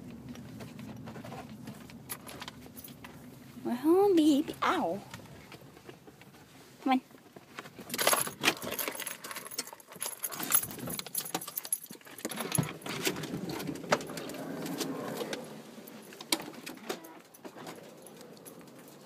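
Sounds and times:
rustling: 0.0 - 19.0
light metal jangling: 7.8 - 19.0.

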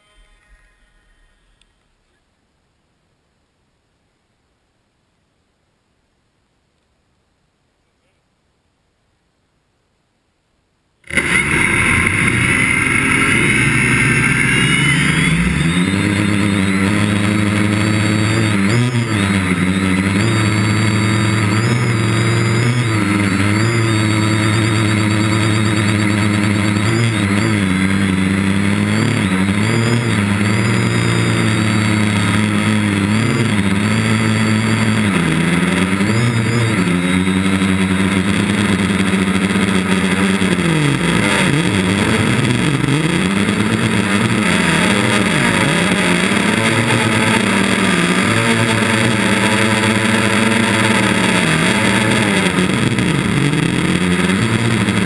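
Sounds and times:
quadcopter propellers buzzing: 11.1 - 55.0.

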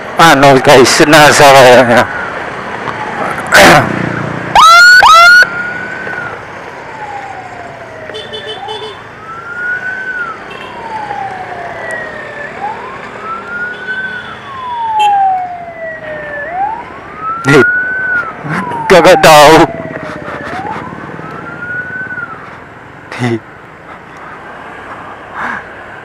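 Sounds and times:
ambulance siren wailing: 0.2 - 3.9, 4.5 - 22.6
loud siren whoops: 4.5 - 22.4.

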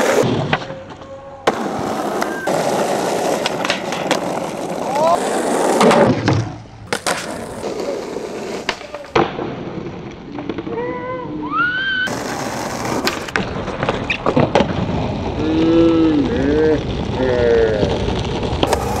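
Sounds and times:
skateboard clacks: 0.0 - 9.5, 12.1 - 16.3, 18.2 - 19.0
skateboard wheels rolling on asphalt: 0.0 - 19.0.

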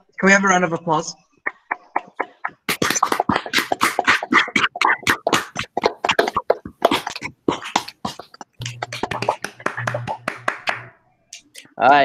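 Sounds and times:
scattered hand clapping: 1.5 - 10.9.

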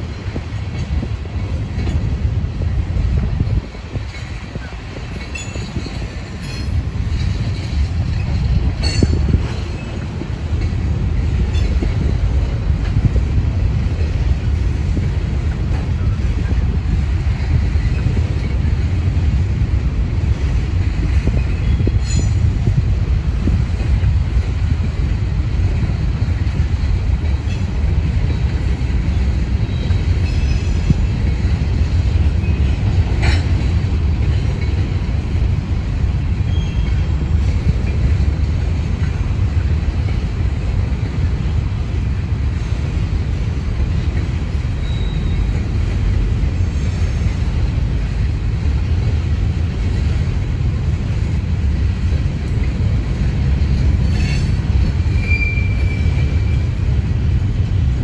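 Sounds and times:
freight train wheels rumbling on rails: 0.0 - 58.0
high-pitched wheel squeals: 44.8 - 45.5, 54.2 - 56.7.

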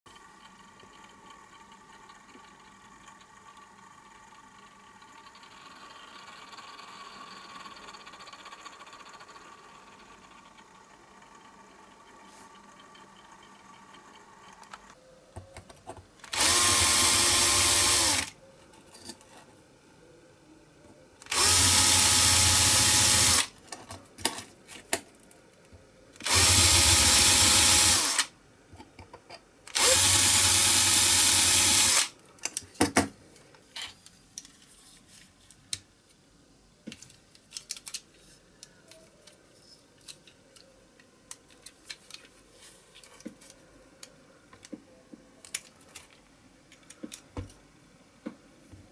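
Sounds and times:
cordless drill running: 16.3 - 18.3, 21.2 - 23.5, 26.2 - 28.3, 29.7 - 32.1.

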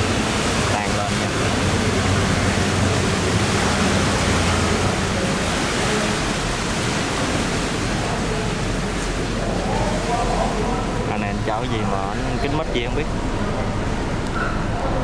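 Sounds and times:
barge engine hum: 0.0 - 15.0
water rushing through sluice gate: 0.0 - 15.0.

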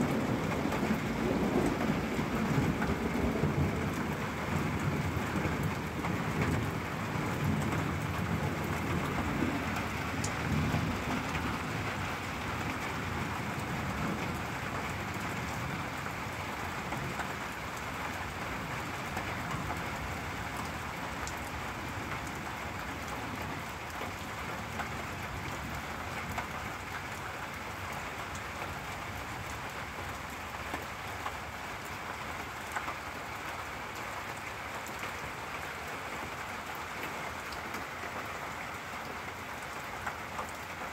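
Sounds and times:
thunder rumbling: 0.0 - 17.3
steady rain falling: 0.0 - 40.9.

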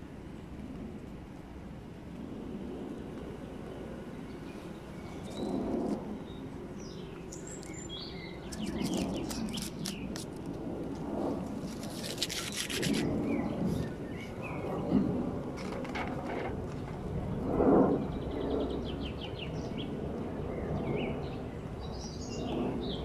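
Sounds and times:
small birds chirping: 3.2 - 10.4, 11.6 - 15.0.

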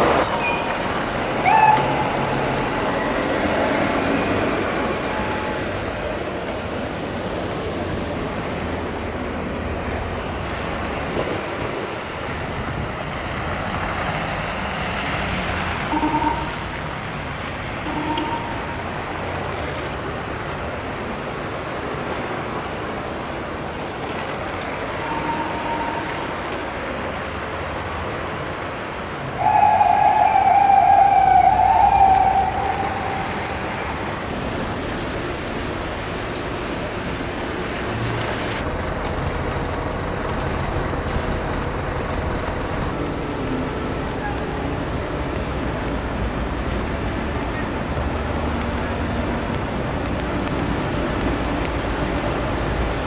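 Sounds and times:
street traffic noise: 0.0 - 53.0
emergency siren: 1.4 - 5.9, 15.9 - 16.8, 17.8 - 19.2, 24.9 - 26.5, 29.4 - 34.3.

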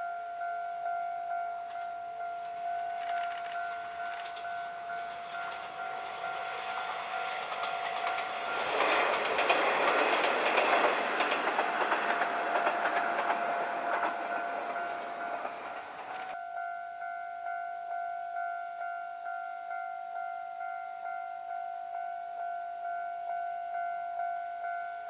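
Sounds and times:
diesel railcars passing: 0.0 - 17.6.

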